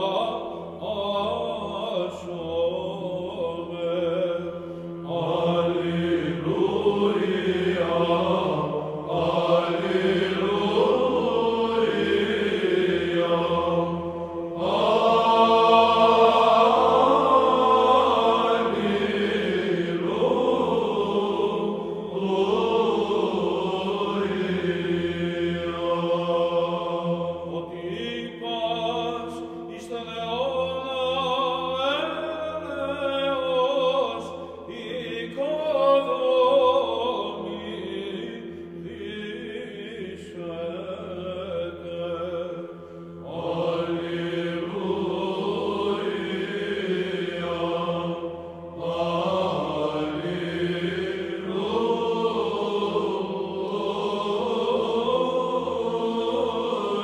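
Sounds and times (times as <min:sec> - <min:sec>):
voices chanting melodic lines: 0:05.0 - 0:28.6, 0:43.2 - 0:57.0.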